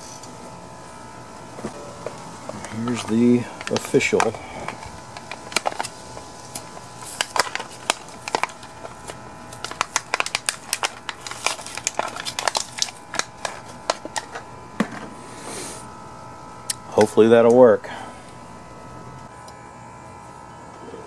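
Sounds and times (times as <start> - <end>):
paper packet tearing and crinkling: 2.5 - 14.4.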